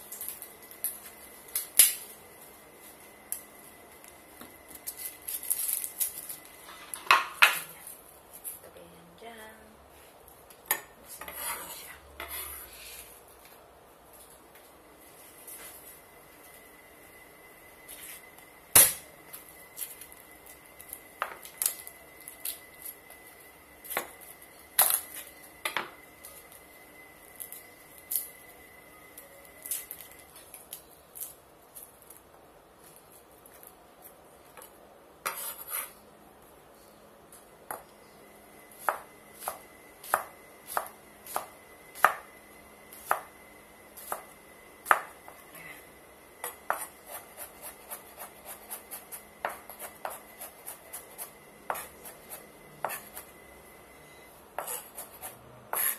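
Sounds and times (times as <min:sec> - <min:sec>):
knife chopping on wooden board: 0:46.4 - 0:52.2.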